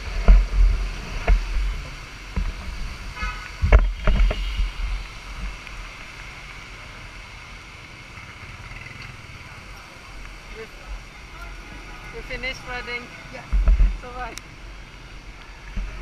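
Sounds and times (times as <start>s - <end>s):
wind buffeting microphone: 0.0s - 6.4s, 12.2s - 16.0s
wet road traffic hiss: 0.0s - 16.0s.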